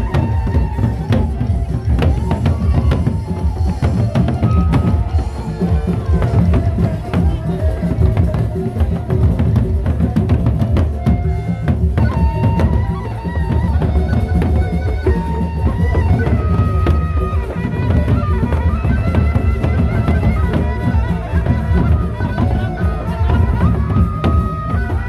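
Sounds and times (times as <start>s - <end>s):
barrel drums beaten with sticks: 0.0s - 25.0s.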